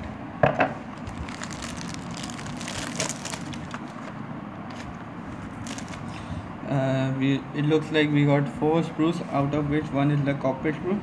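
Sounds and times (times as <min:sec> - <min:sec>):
plastic bag crinkling: 0:01.0 - 0:04.1, 0:05.5 - 0:06.1.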